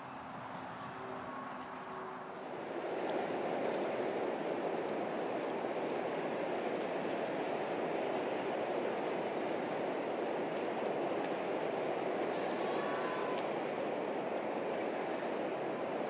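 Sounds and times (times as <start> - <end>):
river water rushing: 0.0 - 16.0
faint ticks: 10.5 - 13.9.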